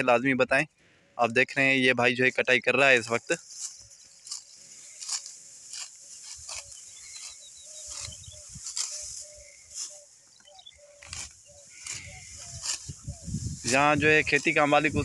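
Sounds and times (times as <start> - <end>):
wheat stalks swishing as cut: 3.0 - 10.1, 10.9 - 15.0.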